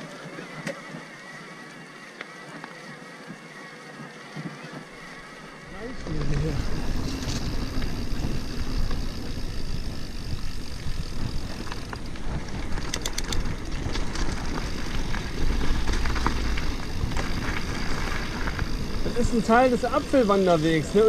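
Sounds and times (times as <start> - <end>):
bike tyres rolling on gravel: 0.0 - 21.0
rattling clicks: 12.6 - 14.2.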